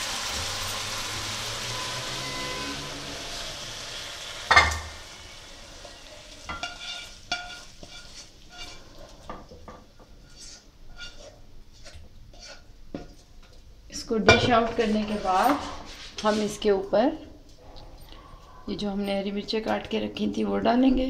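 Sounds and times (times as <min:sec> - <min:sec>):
food sizzling in a wok: 0:00.0 - 0:12.7
pan clanking on burner: 0:04.5 - 0:05.1, 0:06.5 - 0:10.4
spatula tapping and scraping wok: 0:05.9 - 0:13.6.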